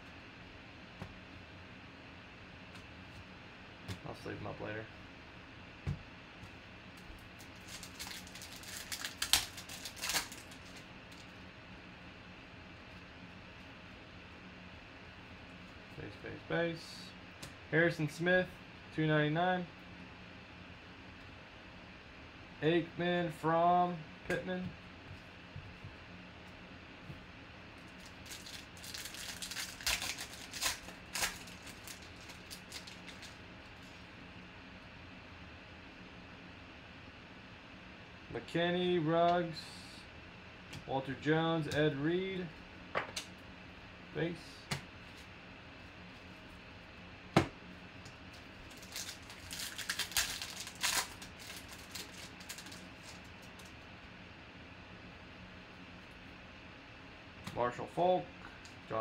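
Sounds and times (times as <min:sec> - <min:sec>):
cards rustling: 0:07.4 - 0:11.2, 0:28.0 - 0:34.0, 0:48.4 - 0:53.7
foil wrapper crinkling: 0:07.4 - 0:11.3, 0:27.9 - 0:34.0, 0:48.3 - 0:53.8.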